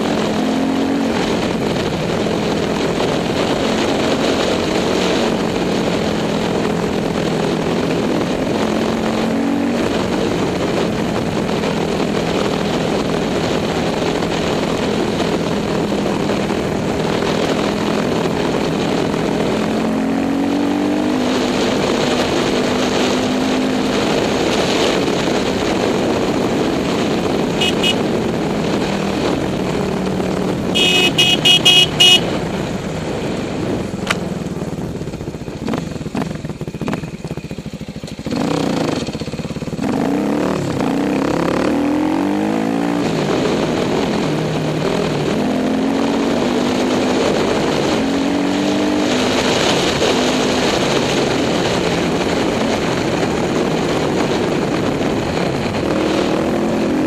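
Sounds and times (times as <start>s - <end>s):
dirt bike engine revving: 26.6s - 29.4s, 30.6s - 32.5s, 38.2s - 43.7s
loud high beeps: 30.8s - 32.2s.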